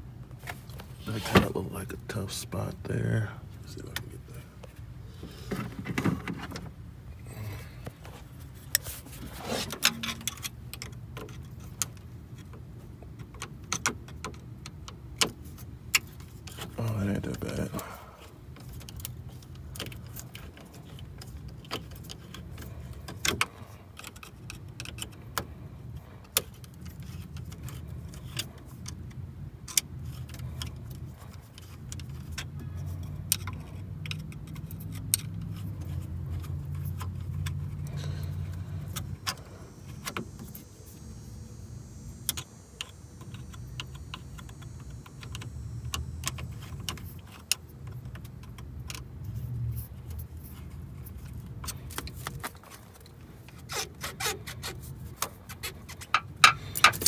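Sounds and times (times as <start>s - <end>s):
low steady hum: 0.0s - 57.0s.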